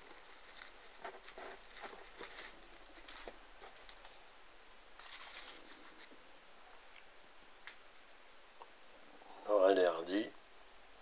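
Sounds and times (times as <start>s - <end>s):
cardboard packet rustling: 0.0s - 4.1s.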